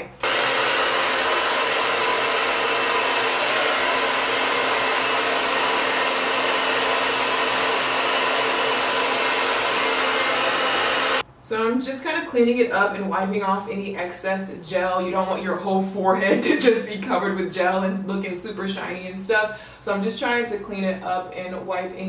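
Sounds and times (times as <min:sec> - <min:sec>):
hair dryer blowing air: 0:00.0 - 0:11.2.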